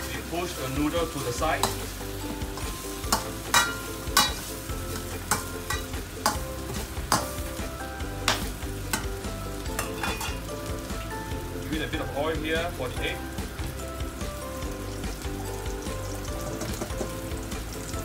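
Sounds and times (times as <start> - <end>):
noodles sizzling in a wok: 0.0 - 18.0
metal spatula scraping a pan: 1.5 - 7.3, 8.3 - 10.5.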